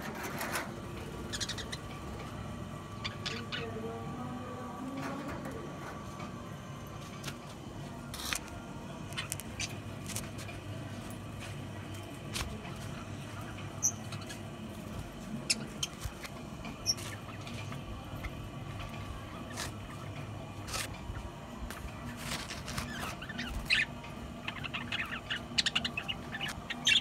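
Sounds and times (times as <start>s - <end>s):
budgerigars chirping: 1.3s - 1.8s, 22.9s - 27.0s.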